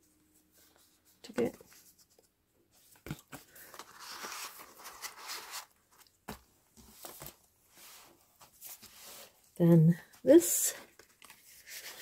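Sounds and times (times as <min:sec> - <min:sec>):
paper rustling and sliding: 0:02.8 - 0:09.4, 0:11.1 - 0:12.0.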